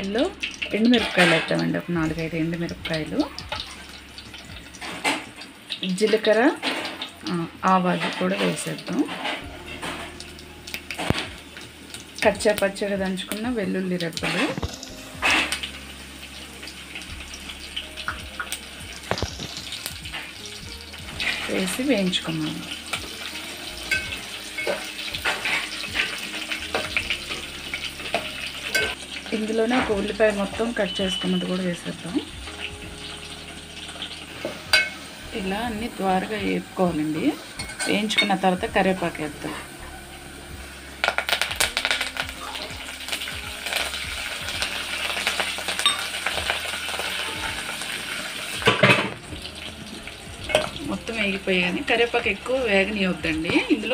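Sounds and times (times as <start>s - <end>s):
spices sizzling and popping in oil: 0.0s - 53.9s
spoon stirring: 23.9s - 29.0s.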